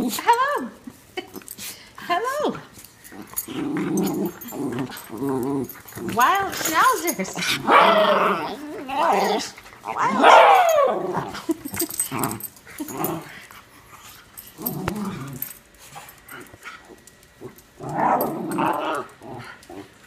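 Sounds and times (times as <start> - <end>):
dogs growling and barking: 2.9 - 20.0.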